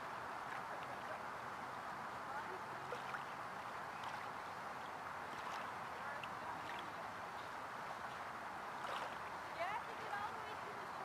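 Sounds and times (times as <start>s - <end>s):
small waves lapping at shore: 0.0s - 11.0s
tiny water splashes: 2.3s - 7.2s, 7.9s - 10.5s.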